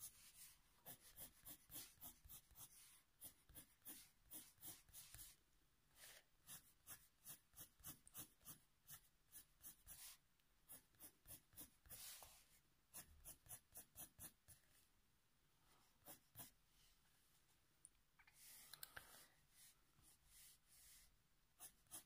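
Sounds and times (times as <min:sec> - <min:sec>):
pencil scratching on paper: 0:00.0 - 0:05.4, 0:06.0 - 0:14.6, 0:16.0 - 0:16.6, 0:19.6 - 0:22.0.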